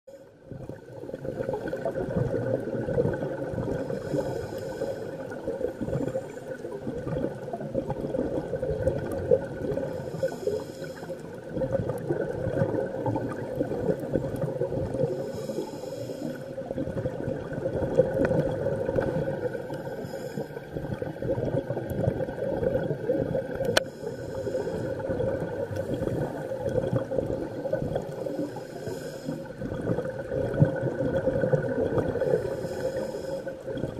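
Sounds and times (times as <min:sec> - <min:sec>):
underwater regulator bubbling: 0:00.5 - 0:33.9
regulator hiss: 0:10.0 - 0:11.3, 0:15.2 - 0:16.4, 0:23.8 - 0:25.0, 0:32.3 - 0:33.5.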